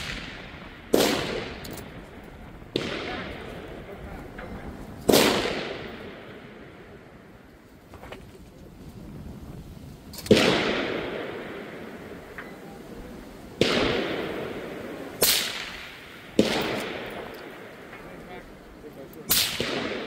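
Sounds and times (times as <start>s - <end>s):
suppressed rifle shots echoing: 0.0s - 6.9s, 10.2s - 12.6s, 13.6s - 20.0s.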